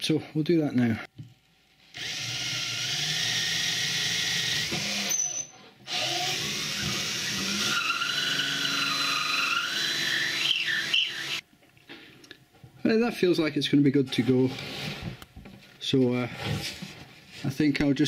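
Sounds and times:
cordless drill whining: 1.9s - 11.4s
drill bit cutting plywood: 1.9s - 11.4s.

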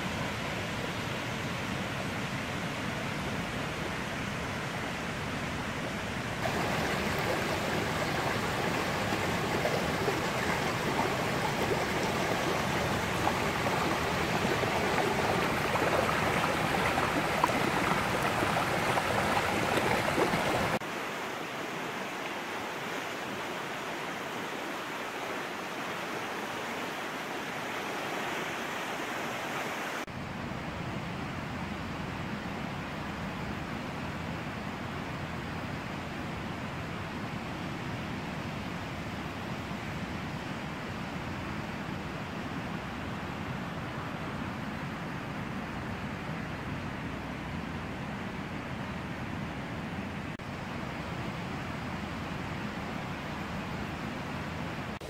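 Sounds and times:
stream running over stones: 6.4s - 30.1s.

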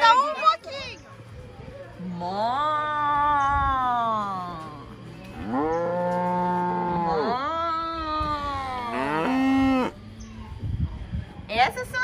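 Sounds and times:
cows mooing: 5.3s - 7.6s, 8.8s - 10.0s.

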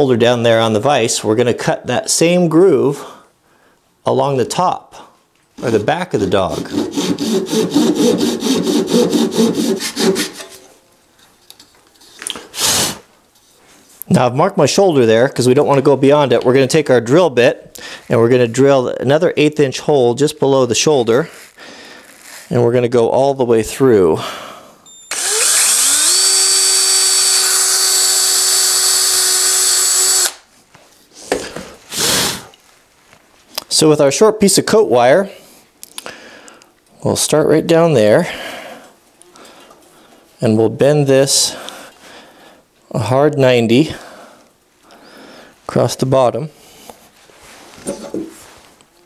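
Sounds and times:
hand saw cutting wood: 6.4s - 10.7s
electric drill boring into wood: 25.1s - 30.4s.

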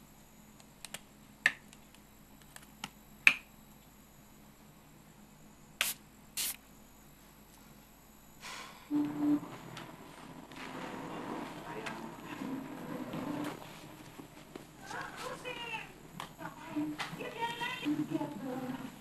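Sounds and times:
short hissing bursts: 5.8s - 6.6s.

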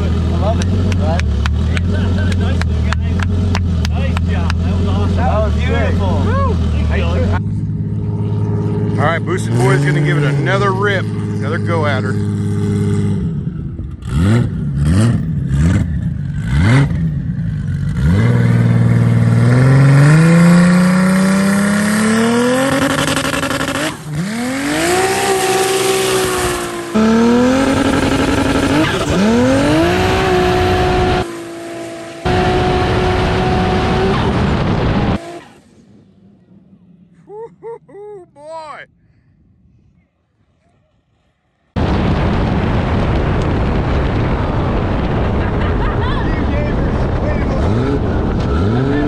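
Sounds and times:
engine revving and accelerating: 0.0s - 35.8s, 46.5s - 49.0s.

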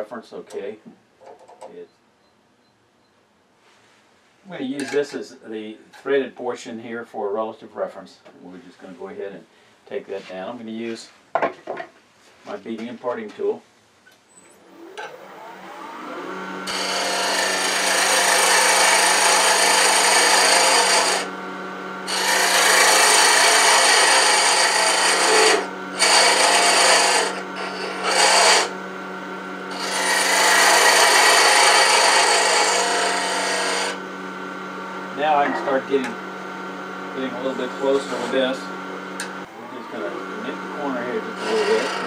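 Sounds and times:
wood lathe humming: 14.7s - 42.0s
lathe tool cutting wood hiss: 16.7s - 21.3s, 22.1s - 28.7s, 29.7s - 34.0s, 37.1s - 39.3s, 40.0s - 42.0s.

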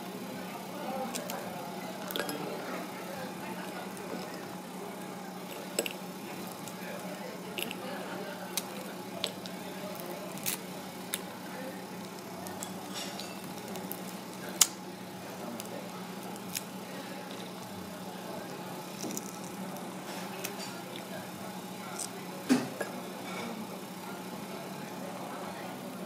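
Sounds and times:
steady low hum: 0.0s - 26.0s
barnacle shells cracking: 1.0s - 1.4s, 5.3s - 14.8s, 15.4s - 17.7s, 18.7s - 21.1s.

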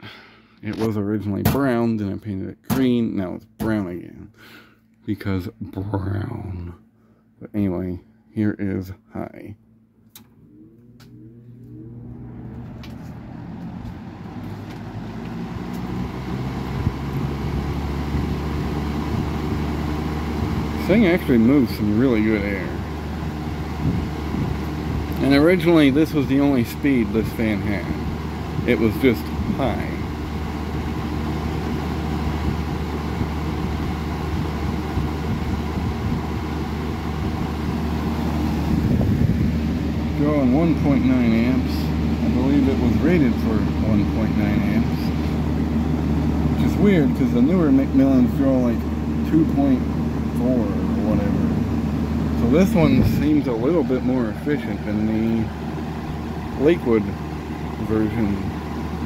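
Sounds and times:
fan motor hum: 0.0s - 59.0s
fan switch click: 10.0s - 13.7s
air rushing from fan blades: 10.3s - 59.0s.

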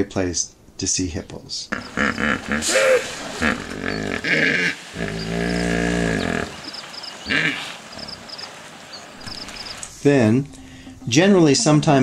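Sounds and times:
hippos grunting and calling: 1.7s - 9.9s.

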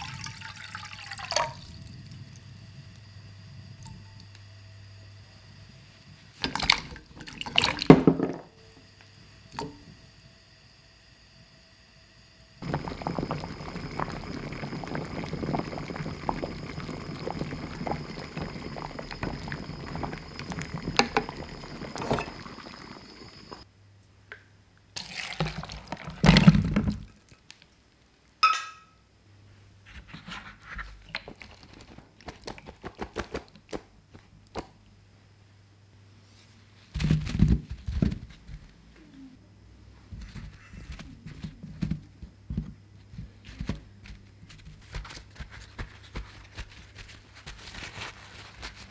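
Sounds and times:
water boiling and bubbling: 0.0s - 10.6s, 12.6s - 23.7s, 25.0s - 27.8s, 31.0s - 33.8s.

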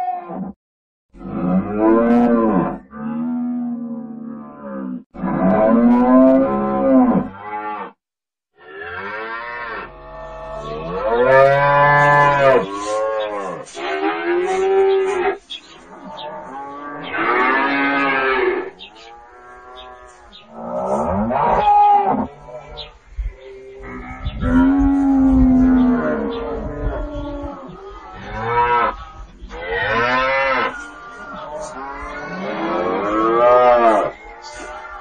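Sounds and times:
cattle mooing: 8.6s - 15.4s, 28.2s - 35.0s.

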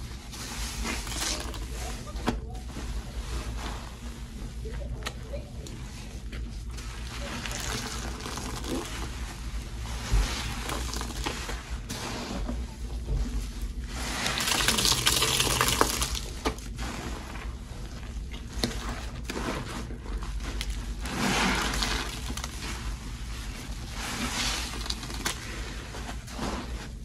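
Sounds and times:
soapy water sloshing and splashing: 6.7s - 12.8s, 13.8s - 27.0s.

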